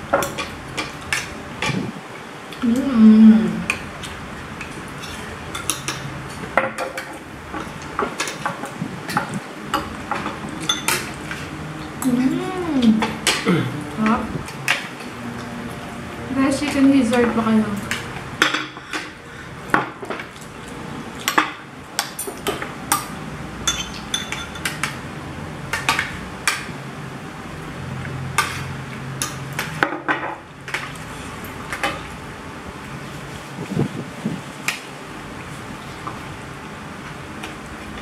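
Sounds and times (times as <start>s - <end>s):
cutlery clinking on plates: 4.6s - 11.4s, 21.2s - 25.0s.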